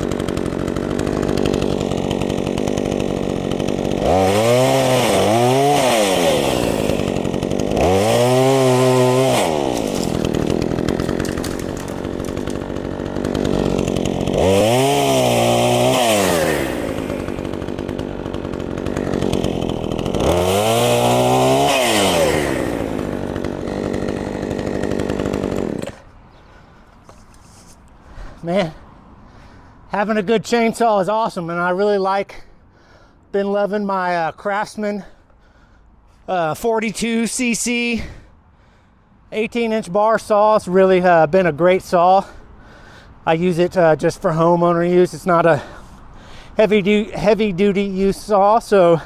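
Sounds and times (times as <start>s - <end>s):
chainsaw revving: 0.0s - 27.4s, 43.2s - 49.0s.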